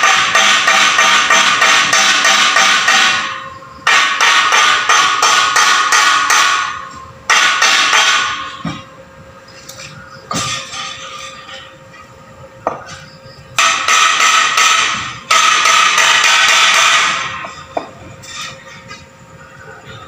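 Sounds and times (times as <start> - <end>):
hammer striking steel bars: 0.0 - 8.9, 10.3 - 11.7, 13.6 - 19.0.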